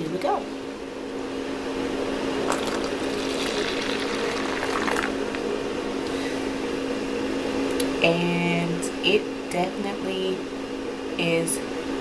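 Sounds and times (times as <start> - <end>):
steady low hum: 0.0 - 12.0
liquid pouring into cup: 2.4 - 5.4
mixture fizzing and foaming: 2.4 - 5.4.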